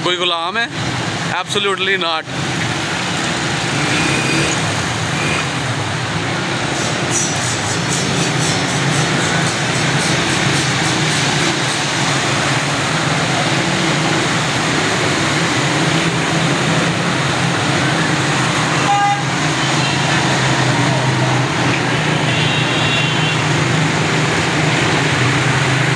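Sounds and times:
traffic through water: 0.0 - 25.9
horn toot: 18.8 - 20.2.

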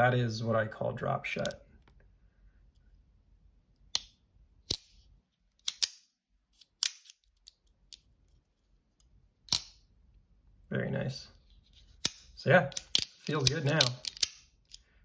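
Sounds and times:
folding knife metallic clicks: 12.0 - 14.8.

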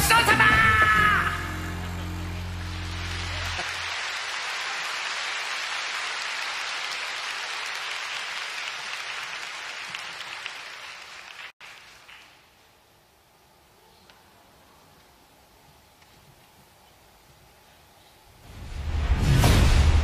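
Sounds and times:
audience applauding: 0.2 - 12.6.

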